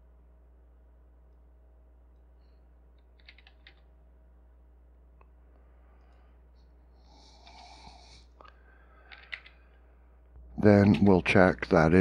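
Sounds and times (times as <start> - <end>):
steady low hum: 0.0 - 12.0
keyboard keystroke clicks: 3.2 - 3.8.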